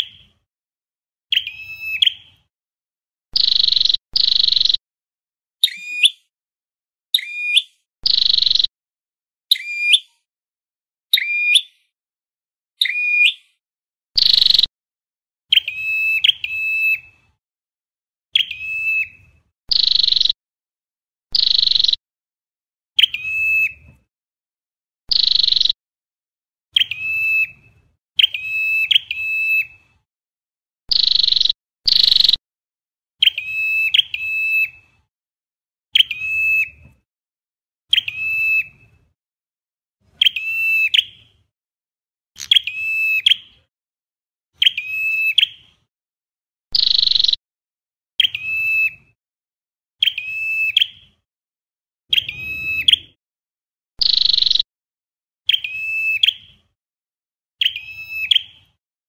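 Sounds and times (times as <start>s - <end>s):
bird singing sharp clear notes: 1.3s - 2.5s, 3.4s - 4.8s, 5.6s - 6.3s, 7.2s - 8.7s, 12.8s - 13.6s, 14.2s - 14.7s, 52.1s - 53.2s.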